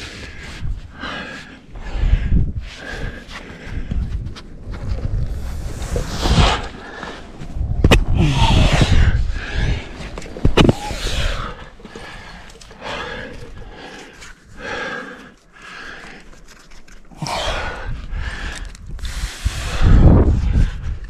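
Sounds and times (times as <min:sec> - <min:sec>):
climber breathing hard: 0:00.0 - 0:21.0
body and clothing scraping rock: 0:09.6 - 0:17.4.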